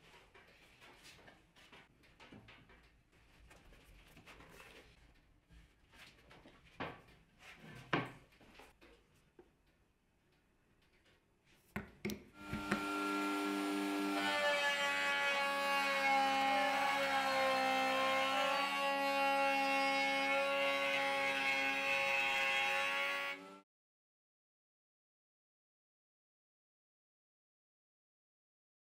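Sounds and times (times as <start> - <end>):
router whining: 12.4 - 23.6.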